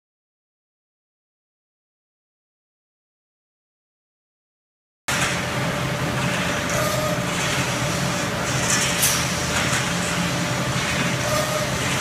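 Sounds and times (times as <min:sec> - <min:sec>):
steady machine noise: 0:05.1 - 0:12.0.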